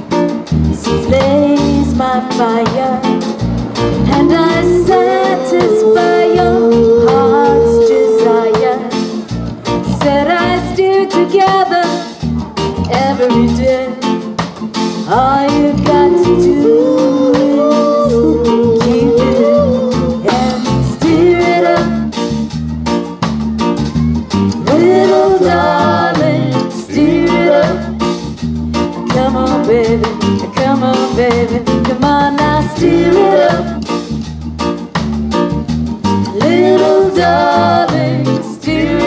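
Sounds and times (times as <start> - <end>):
reggae band playing: 0.0 - 39.0
woman singing: 0.7 - 3.3, 4.0 - 9.2, 9.8 - 12.2, 12.8 - 14.1, 15.1 - 22.2, 24.6 - 28.0, 29.0 - 33.8, 36.3 - 39.0
heavy bass line: 2.8 - 10.8, 15.1 - 39.0.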